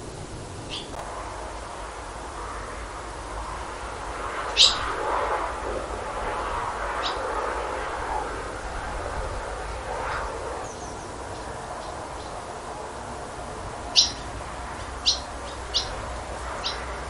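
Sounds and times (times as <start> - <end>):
swallows twittering: 0.7 - 1.0, 4.5 - 5.0, 7.0 - 7.3, 10.2 - 12.4, 13.9 - 14.3, 15.0 - 17.0.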